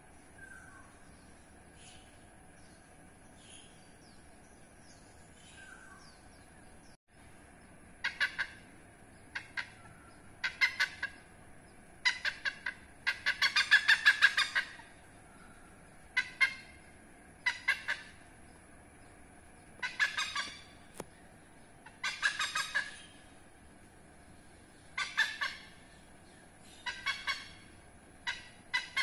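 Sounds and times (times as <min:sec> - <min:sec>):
hornbill calling: 0:07.8 - 0:11.4, 0:12.0 - 0:23.6, 0:24.6 - 0:29.0.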